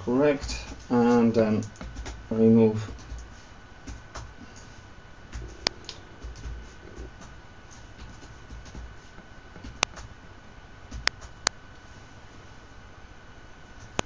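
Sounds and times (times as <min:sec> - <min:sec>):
laptop keyboard typing: 0:00.5 - 0:02.2, 0:05.3 - 0:07.3, 0:09.6 - 0:10.1.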